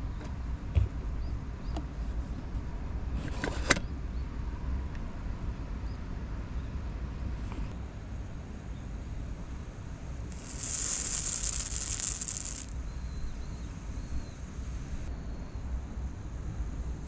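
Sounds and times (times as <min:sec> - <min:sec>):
hot branding iron sizzling: 0:10.3 - 0:12.7.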